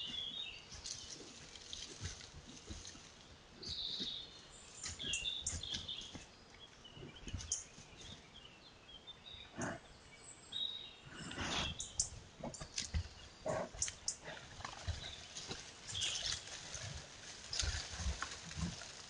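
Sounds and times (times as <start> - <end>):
bear footsteps on leaf litter: 0.0 - 6.4, 14.4 - 19.0
small birds chirping: 0.0 - 19.0
breathy snuffles: 9.5 - 9.8, 11.1 - 12.7
bear sniffing: 9.6 - 9.8, 11.1 - 18.8.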